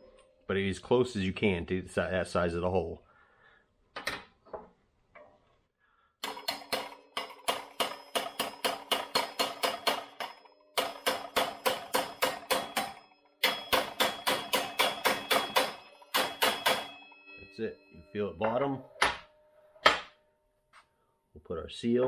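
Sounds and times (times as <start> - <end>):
hammer striking metal socket: 6.2 - 17.1.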